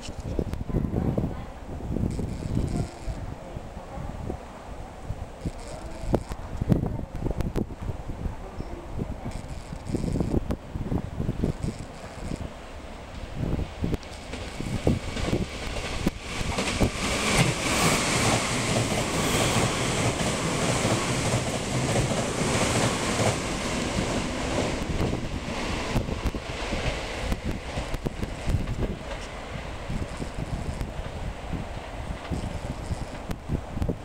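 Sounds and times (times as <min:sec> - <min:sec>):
train passing at speed: 0:12.2 - 0:33.9
wheels clattering on rails: 0:13.8 - 0:31.2, 0:32.1 - 0:33.9.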